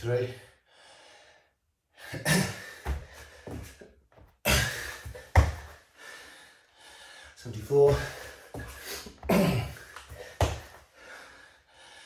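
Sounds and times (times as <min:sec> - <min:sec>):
thuds on exercise mat: 0:05.1 - 0:05.7, 0:10.4 - 0:10.7.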